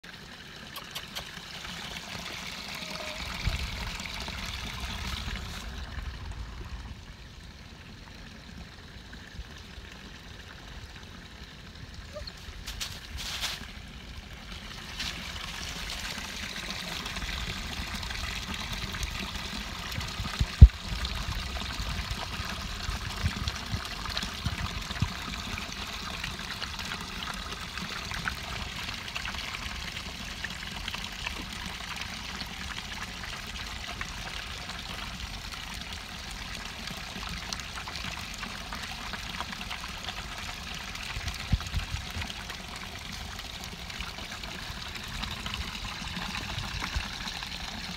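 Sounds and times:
water pouring onto rocks: 0:12.4 - 0:29.3.

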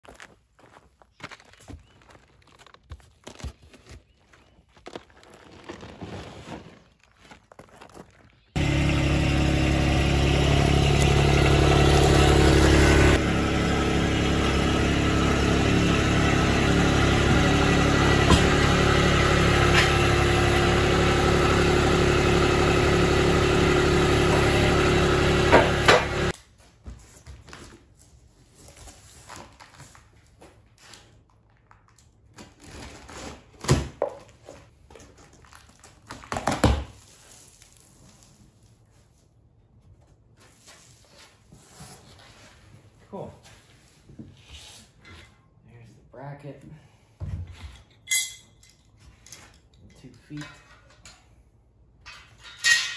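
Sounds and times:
forklift engine running: 0:08.6 - 0:26.3.

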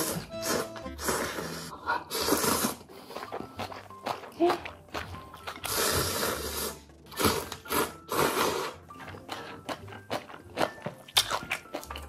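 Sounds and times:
person slurping noodles: 0:00.0 - 0:03.4, 0:05.4 - 0:09.7
chewing: 0:02.1 - 0:12.0.

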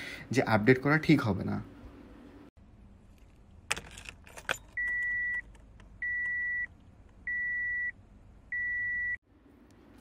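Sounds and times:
car warning chime beeps: 0:06.0 - 0:06.7, 0:07.3 - 0:07.9, 0:08.5 - 0:09.2.

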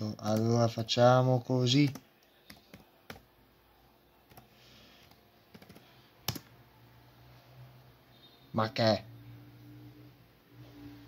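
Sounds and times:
computer keys clicking: 0:01.8 - 0:03.3, 0:04.3 - 0:06.5.

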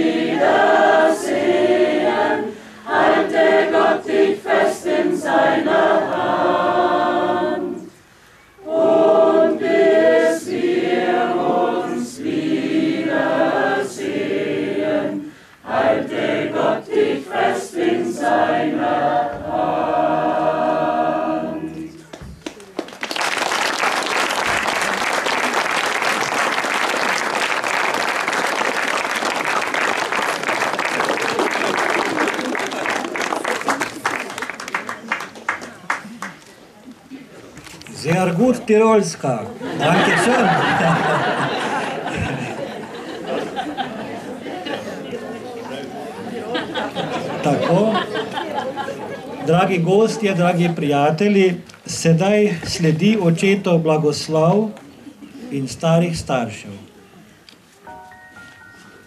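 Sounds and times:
mixed choir singing: 0:00.0 - 0:22.2, 0:39.6 - 0:50.9
crowd applauding: 0:22.1 - 0:36.4.

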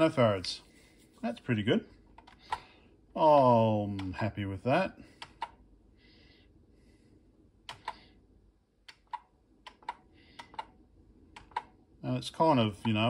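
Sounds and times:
computer keys clicking: 0:07.7 - 0:08.0, 0:08.8 - 0:11.8.

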